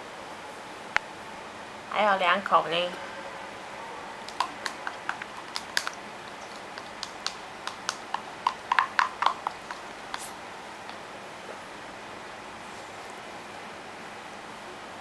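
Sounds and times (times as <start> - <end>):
toddler chewing and lip smacking: 4.2 - 11.0.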